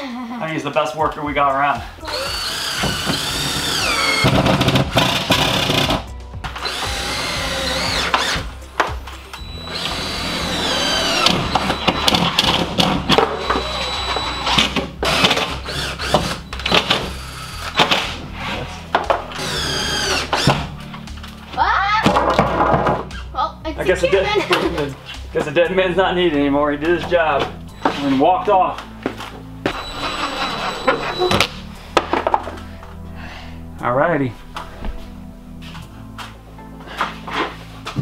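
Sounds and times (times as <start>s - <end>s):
background music: 0.0s - 38.0s
cordless drill driving screws: 2.1s - 6.0s, 6.6s - 8.5s, 9.3s - 18.2s, 19.3s - 20.7s, 27.8s - 28.2s, 29.7s - 31.6s.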